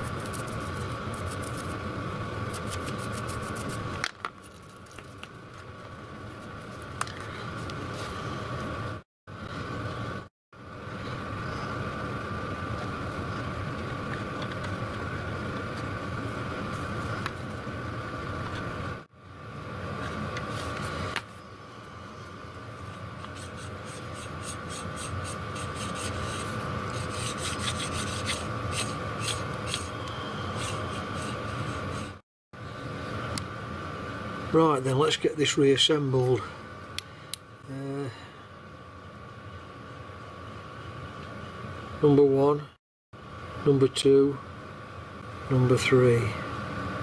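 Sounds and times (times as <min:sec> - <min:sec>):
steady two-tone hum: 0:00.0 - 0:47.0
metal rubbing: 0:22.8 - 0:32.2.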